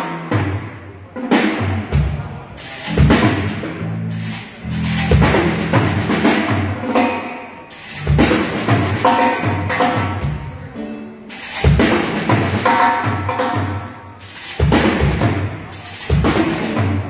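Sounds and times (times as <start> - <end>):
drum kit: 0.0 - 17.0
live cumbia band playing: 1.4 - 17.0
bass line: 2.0 - 7.0, 7.8 - 9.0.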